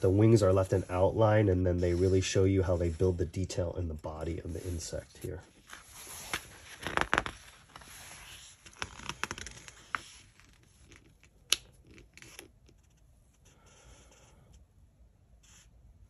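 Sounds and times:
book pages rustling: 4.4 - 13.5.

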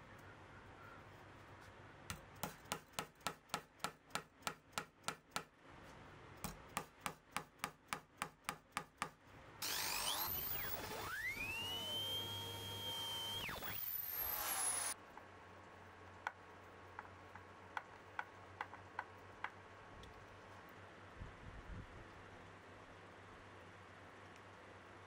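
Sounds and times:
power tool motor whine: 9.6 - 15.0.

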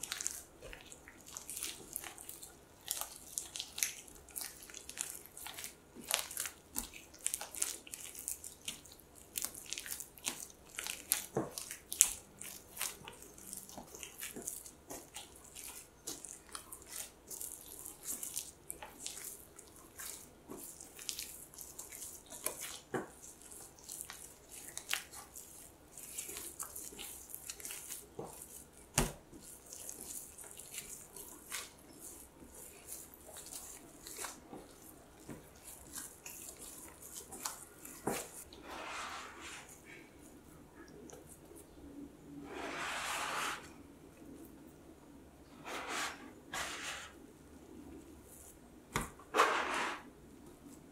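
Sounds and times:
dough squelching on board: 0.0 - 40.1.

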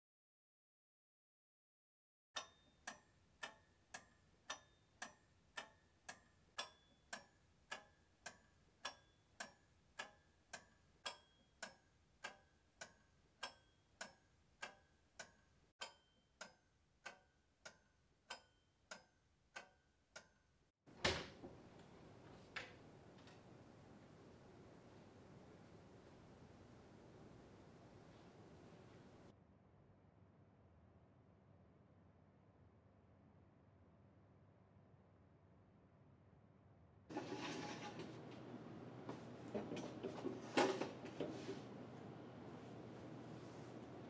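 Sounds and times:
wall clock ticking: 2.4 - 20.5
room hiss: 21.0 - 29.3.

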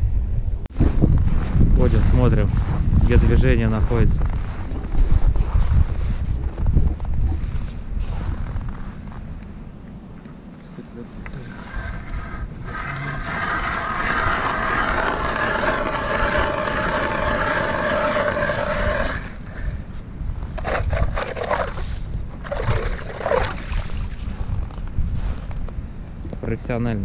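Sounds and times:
ice auger grinding through ice: 11.3 - 19.8, 20.5 - 24.2
ice scraping and knocking: 11.3 - 19.8, 20.5 - 25.3.

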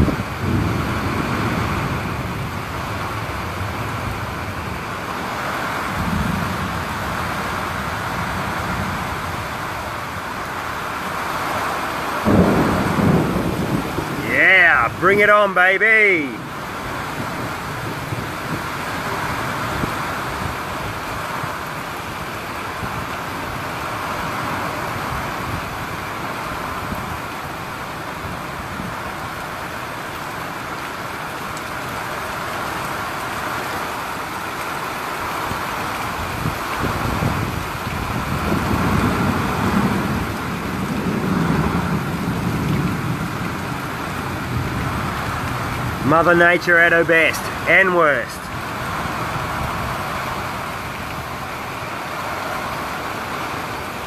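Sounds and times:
thunder rumble: 0.0 - 9.5, 12.2 - 15.2, 36.2 - 46.7
heavy rain pouring: 0.0 - 54.0.

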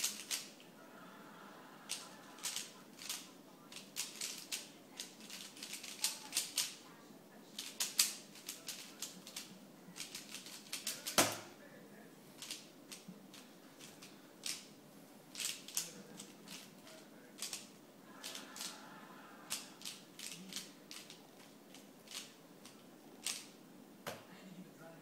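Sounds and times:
puzzle cube plastic clicks: 0.0 - 0.6, 1.9 - 6.8, 7.6 - 11.4, 12.4 - 14.7, 15.3 - 18.7, 19.5 - 23.6.

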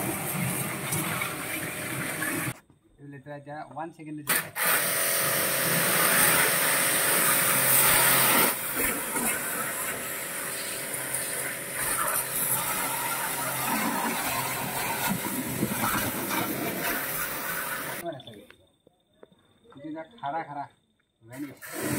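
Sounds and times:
pressure washer spraying water: 0.0 - 2.6, 4.3 - 18.0, 21.5 - 21.9.

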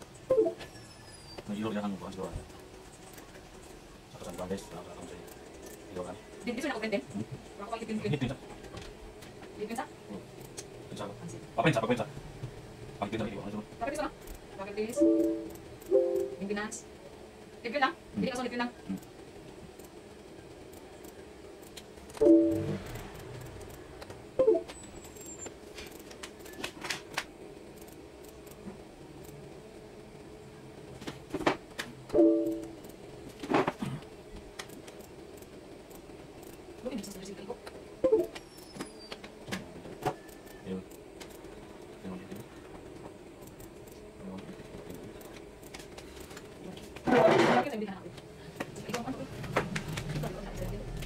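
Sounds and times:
printer mechanism running: 48.9 - 51.0.

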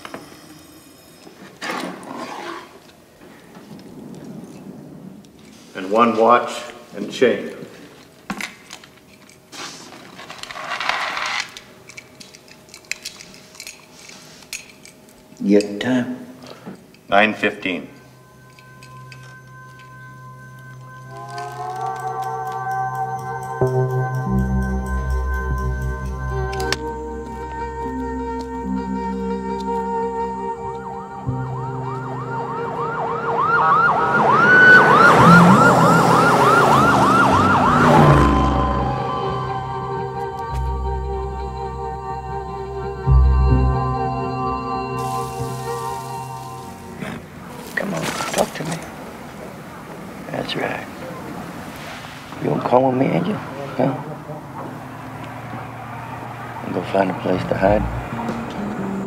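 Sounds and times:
vehicle passing rush: 2.7 - 6.6, 29.9 - 41.3, 45.0 - 59.0
rustling: 7.6 - 15.4, 46.8 - 50.0
light metallic clicks and clinks: 11.8 - 17.1, 18.0 - 23.4
siren yelping: 18.2 - 24.4, 26.2 - 47.2.

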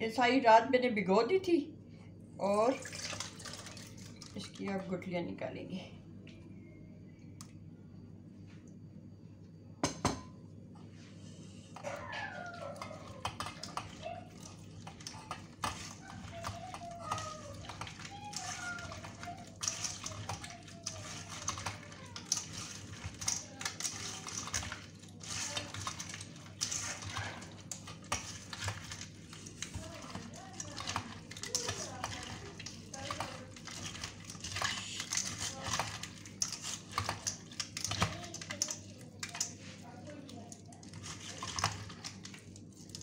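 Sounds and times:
wet squishing and scraping: 10.9 - 43.0.

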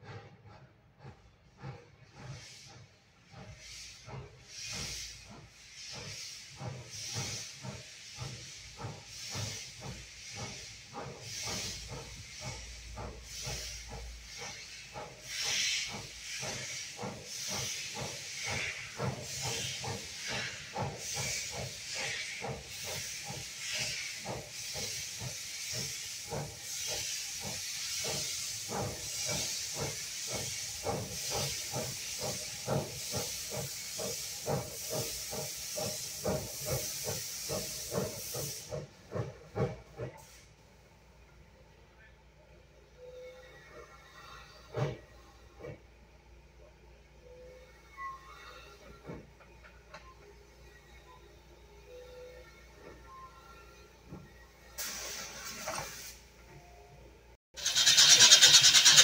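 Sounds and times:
steam locomotive exhaust chuffs: 0.0 - 56.5, 57.5 - 59.0
steam hissing: 1.0 - 40.6, 54.6 - 56.3, 57.6 - 59.0.

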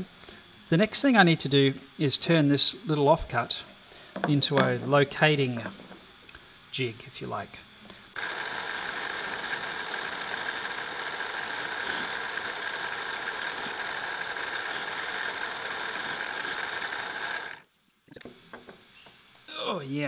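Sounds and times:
machine tool whining: 8.0 - 17.7.

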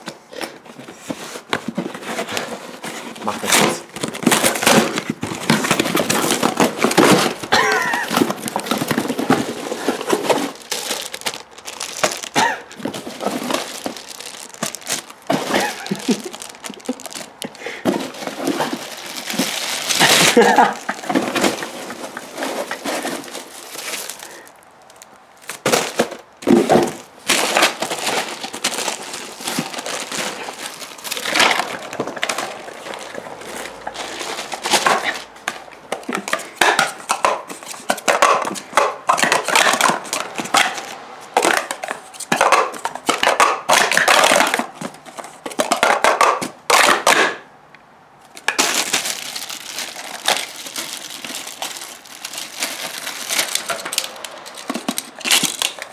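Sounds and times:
plastic bags crinkling: 0.0 - 47.2, 48.3 - 55.9.

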